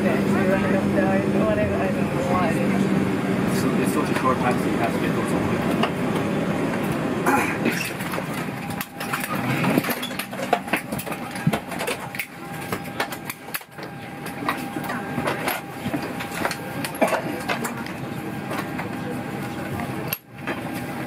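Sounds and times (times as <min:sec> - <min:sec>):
faint voices: 0:00.0 - 0:09.4, 0:12.0 - 0:21.0
aircraft cabin hum: 0:00.0 - 0:21.0.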